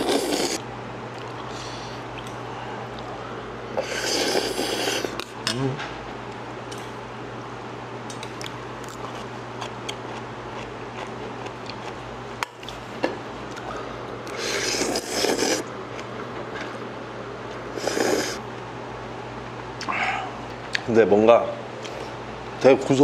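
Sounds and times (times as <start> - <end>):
noodles being slurped: 0.0 - 0.6, 3.8 - 5.2, 14.3 - 15.6, 17.8 - 18.4
steady low hum: 0.0 - 23.0.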